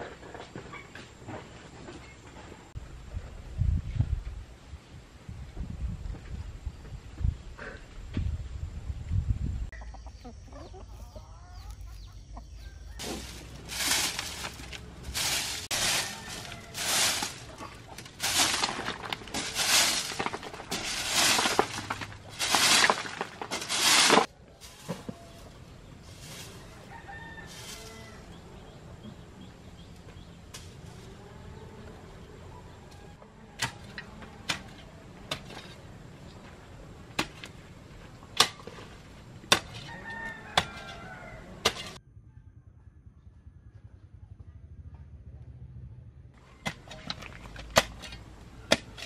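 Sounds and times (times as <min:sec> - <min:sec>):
chickens clucking: 0:09.7 - 0:33.4.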